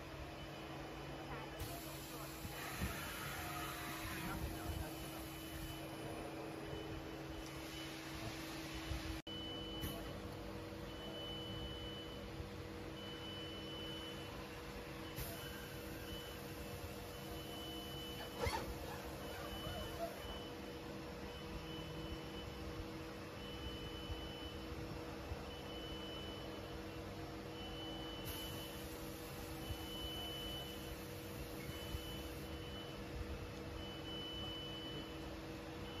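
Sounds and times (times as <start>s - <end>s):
high beep: 29.5s - 33.0s, 33.8s - 36.0s.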